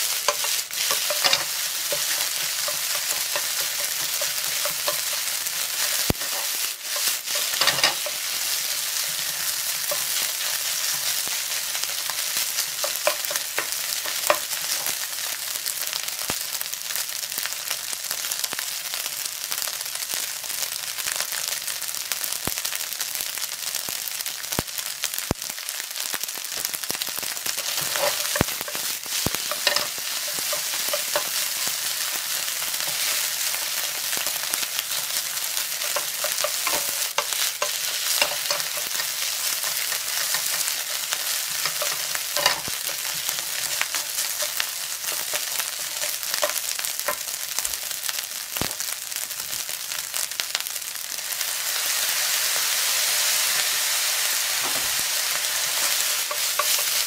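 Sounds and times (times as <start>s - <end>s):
wooden spatula scraping a pan: 0.0s - 14.9s, 27.4s - 47.2s, 53.8s - 57.0s
rice sizzling in a frying pan: 0.0s - 57.0s.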